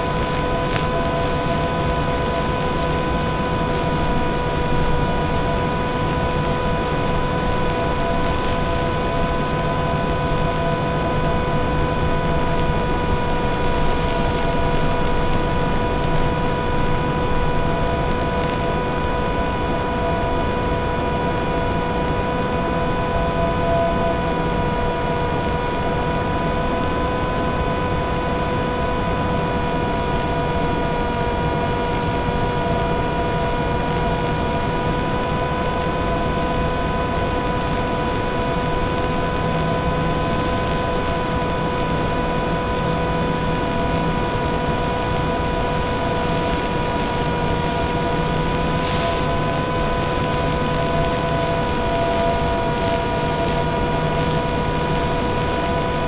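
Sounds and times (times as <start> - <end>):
model plane motor whine: 0.0 - 56.0.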